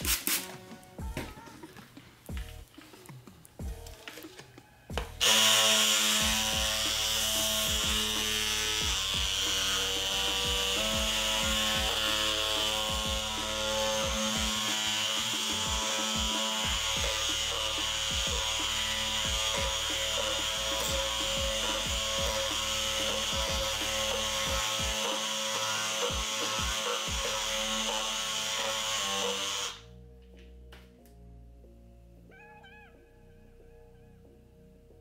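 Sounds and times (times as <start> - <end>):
oscillating multi-tool sanding: 5.2 - 29.8.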